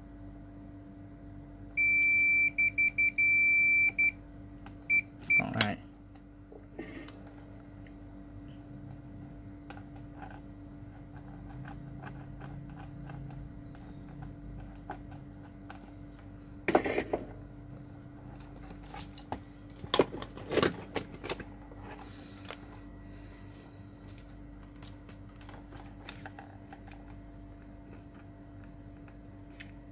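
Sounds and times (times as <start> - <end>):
steady electrical hum: 0.0 - 29.9.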